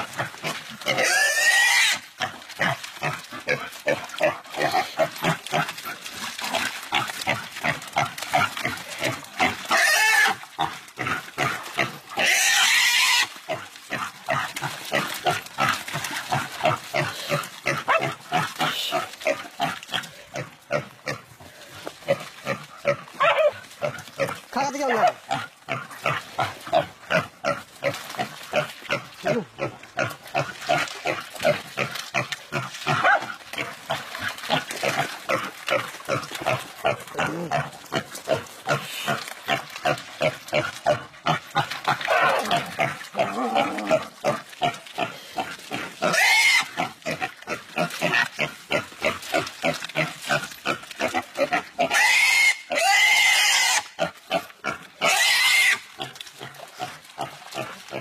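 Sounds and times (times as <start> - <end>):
pig squealing and grunting: 0.0 - 21.2, 22.0 - 58.0
pig screaming high-pitched: 0.9 - 2.0, 9.7 - 10.4, 23.2 - 23.6, 41.9 - 44.1, 46.0 - 46.8, 51.9 - 53.9, 55.0 - 55.8.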